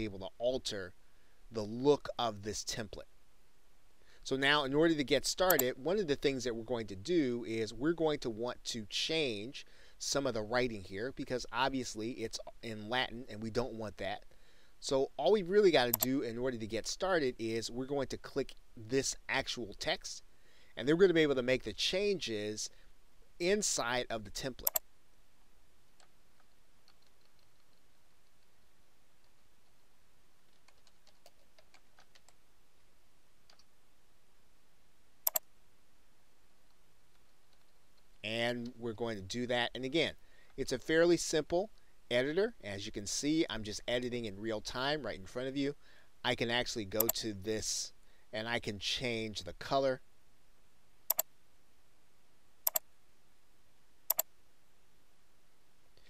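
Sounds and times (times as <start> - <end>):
keyboard typing: 5.4 - 5.7, 15.9 - 16.1, 24.6 - 24.8, 26.0 - 28.5, 30.5 - 32.4, 35.3 - 35.5
sharp clicks: 5.4 - 5.7, 15.9 - 16.2, 24.6 - 24.8, 35.2 - 35.5, 51.1 - 51.3, 52.6 - 52.9, 54.1 - 54.3.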